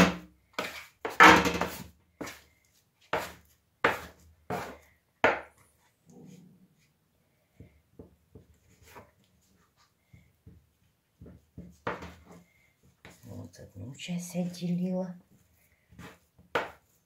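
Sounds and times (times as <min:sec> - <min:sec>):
soft rustle: 0:08.5 - 0:14.1.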